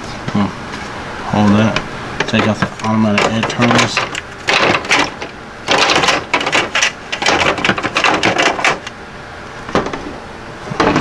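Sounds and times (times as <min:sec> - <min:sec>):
plastic trays clattering: 0:02.2 - 0:09.0, 0:09.7 - 0:11.0.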